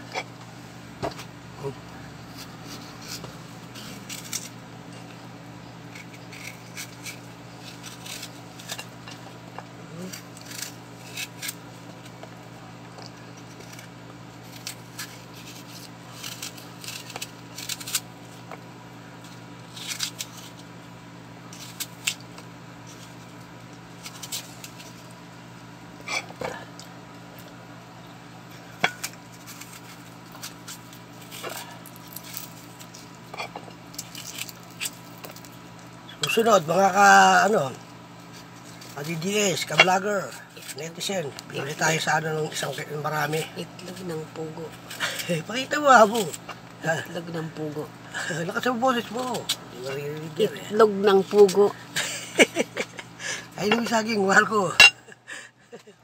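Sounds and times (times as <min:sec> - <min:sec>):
steady low hum: 0:00.0 - 0:56.0
hands peeling food clicks: 0:14.5 - 0:18.0
egg shell cracking: 0:34.0 - 0:35.6.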